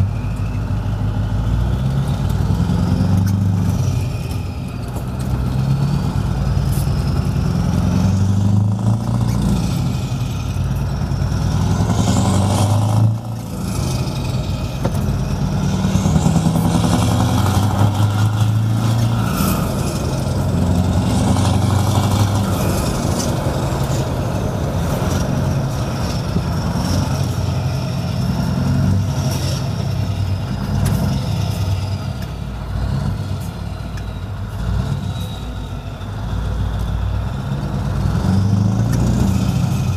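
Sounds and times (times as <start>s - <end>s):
truck engine with open exhaust: 0.0s - 39.9s.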